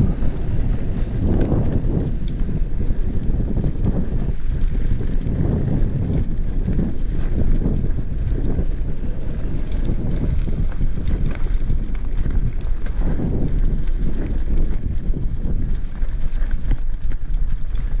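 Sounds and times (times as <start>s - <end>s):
tyre noise on trail: 0.0s - 18.0s
wind buffeting microphone: 0.0s - 18.0s.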